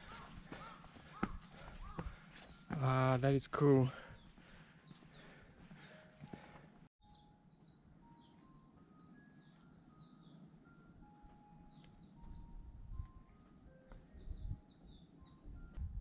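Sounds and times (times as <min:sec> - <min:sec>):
insects trilling and chirping: 0:00.0 - 0:16.0
wind buffeting microphone: 0:14.1 - 0:14.7.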